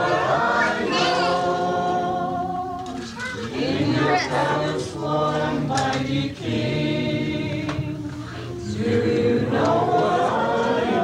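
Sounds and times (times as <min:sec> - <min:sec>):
group singing in unison: 0:00.0 - 0:11.0.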